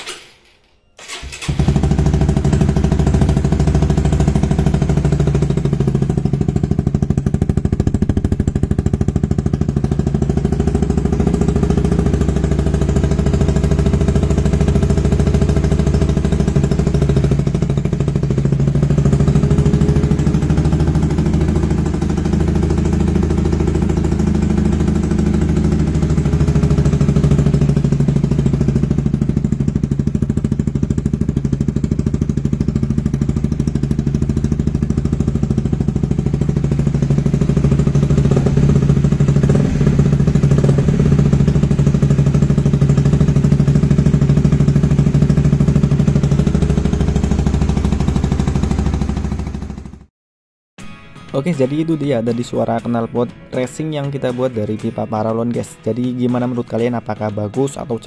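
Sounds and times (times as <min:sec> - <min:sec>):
motorcycle engine idling: 0:01.0 - 0:50.1.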